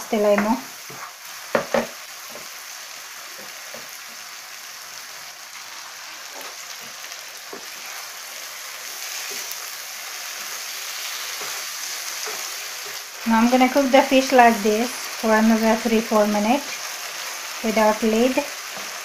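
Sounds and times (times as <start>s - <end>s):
fish sizzling in a frying pan: 0.0s - 19.0s
spatula stirring: 6.4s - 13.3s.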